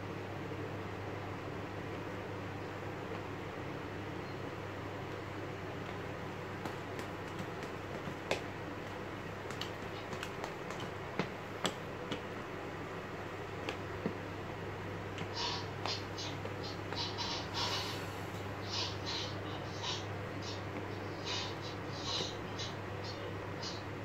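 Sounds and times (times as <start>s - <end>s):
steady low hum: 0.0s - 24.0s
sneakers tapping on tile floor: 5.9s - 12.3s.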